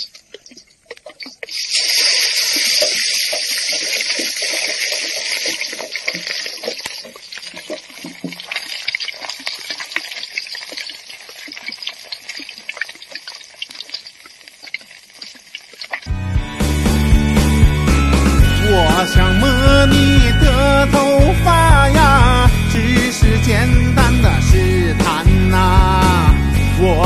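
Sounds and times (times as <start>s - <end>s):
ladle stirring oil: 0.0s - 16.1s
oil sizzling in a wok: 1.5s - 16.2s.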